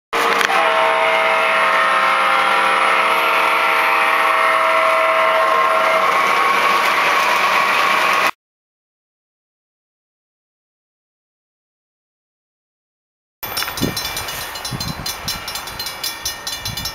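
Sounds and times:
model train motors whirring: 0:00.2 - 0:08.3, 0:13.5 - 0:16.9
steady motor tones: 0:00.2 - 0:08.3.

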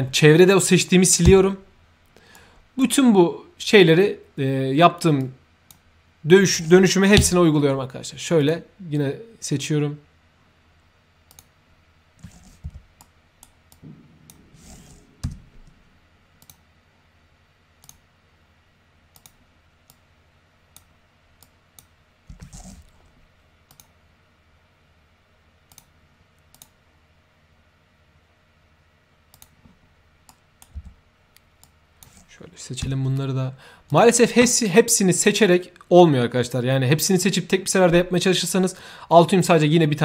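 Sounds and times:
dull thumps: 0:01.2 - 0:01.5, 0:07.2 - 0:07.4
computer mouse clicks: 0:11.3 - 0:11.5, 0:16.4 - 0:16.6, 0:17.8 - 0:18.0, 0:19.1 - 0:20.0, 0:20.7 - 0:22.9, 0:23.6 - 0:24.0, 0:25.7 - 0:26.8, 0:29.3 - 0:29.6.

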